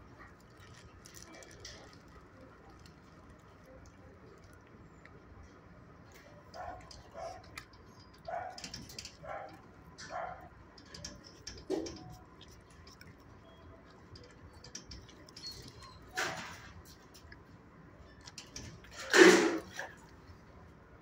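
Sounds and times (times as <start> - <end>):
dog crunching dry treats: 0.1 - 4.8, 6.1 - 17.4.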